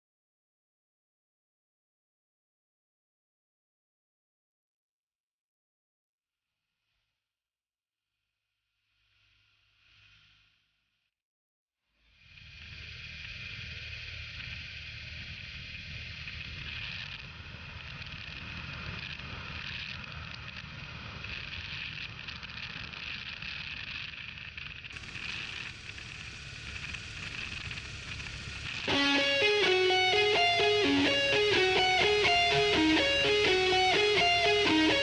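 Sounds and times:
motorcycle engine and road rumble: 0:13.0 - 0:29.0
thin high whine: 0:24.9 - 0:35.0
electric guitar music: 0:25.0 - 0:35.0.

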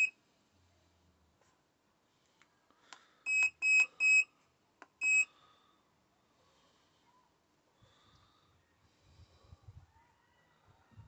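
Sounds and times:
short high key-press beeps: 0:03.3 - 0:04.2.

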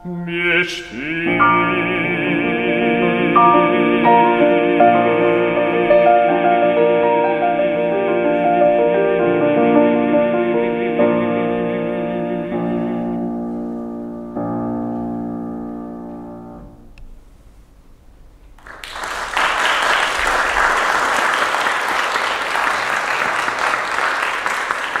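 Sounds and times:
grand piano chord ringing: 0:00.6 - 0:17.0
audience applause: 0:18.6 - 0:25.0.

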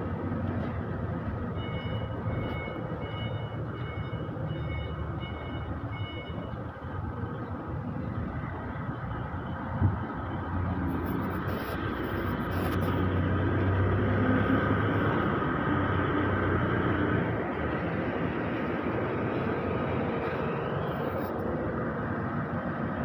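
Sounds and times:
diesel truck engine driving past: 0:06.6 - 0:23.0.

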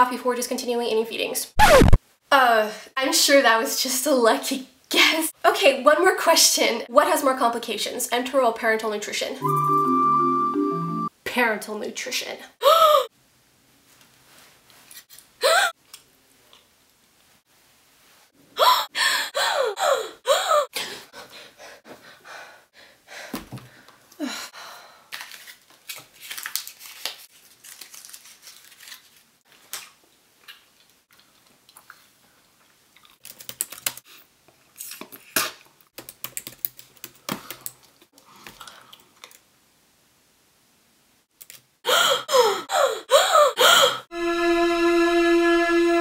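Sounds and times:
vocal noises with falling pitch: 0:01.6 - 0:02.0
laptop keyboard typing: 0:33.2 - 0:34.0, 0:36.0 - 0:37.9.

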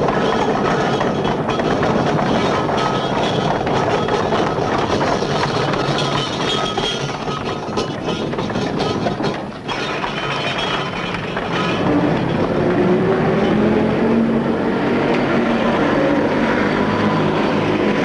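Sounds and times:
carriage wheels and hooves clattering: 0:00.0 - 0:14.2
old car engine running: 0:00.0 - 0:18.0.

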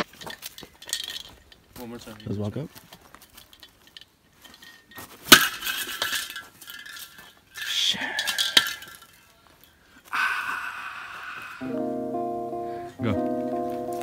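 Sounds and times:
spray cans clinking: 0:00.0 - 0:02.6, 0:03.2 - 0:09.3.

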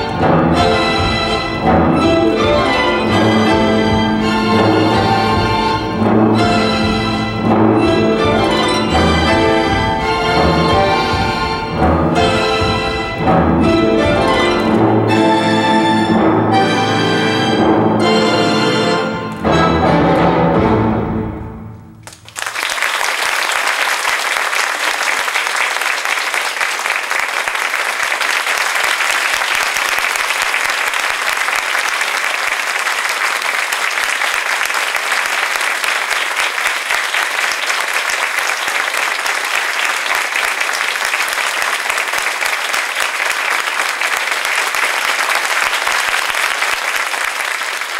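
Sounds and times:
orchestral music: 0:00.0 - 0:22.2
audience applause: 0:22.0 - 0:47.9.

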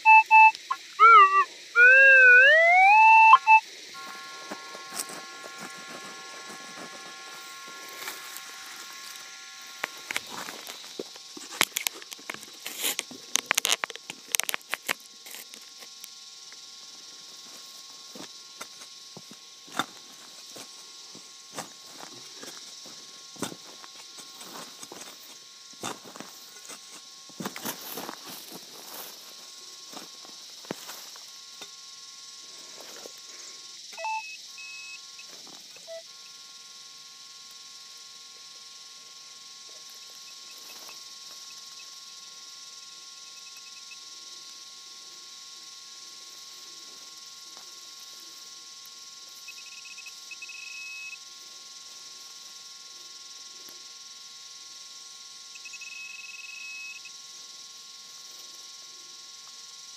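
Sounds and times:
short high beeps: 0:00.0 - 0:04.3, 0:34.0 - 0:34.9
steady high hiss: 0:00.0 - 0:22.2
steady electronic buzzing tone: 0:00.0 - 0:59.9.

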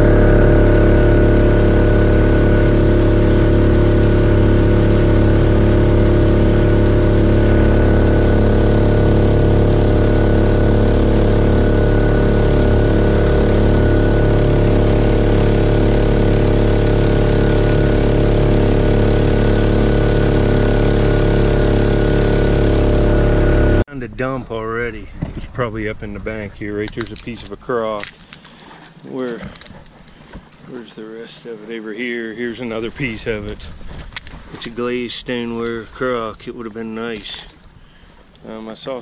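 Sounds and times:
water hissing and spraying: 0:00.0 - 0:23.4
kayak engine running: 0:00.0 - 0:38.6.

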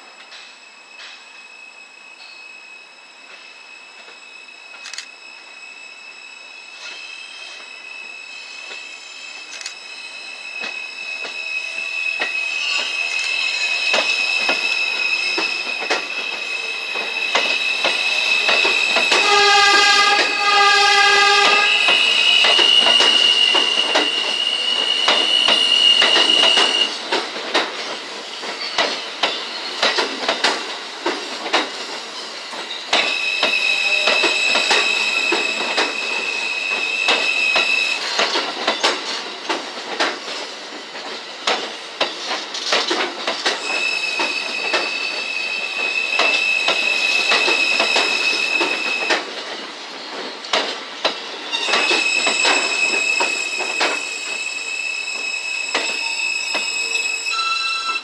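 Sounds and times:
steel wheels squealing on rails: 0:00.0 - 0:58.0
subway train rolling past: 0:00.0 - 0:58.0.

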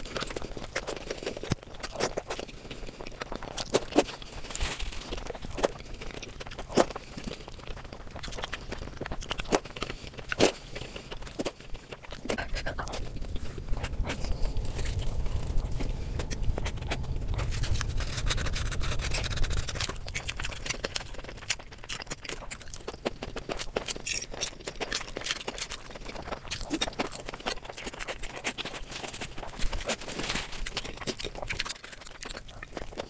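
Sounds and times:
chewing and crunching food: 0:00.0 - 0:33.0
low rumble: 0:11.1 - 0:23.8.

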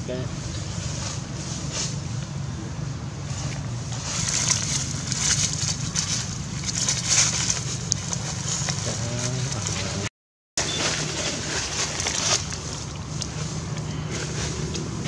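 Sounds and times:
dry leaves crackling: 0:03.2 - 0:15.0.

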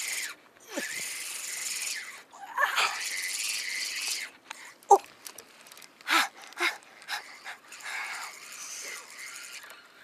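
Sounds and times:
man panting: 0:06.1 - 0:08.2.

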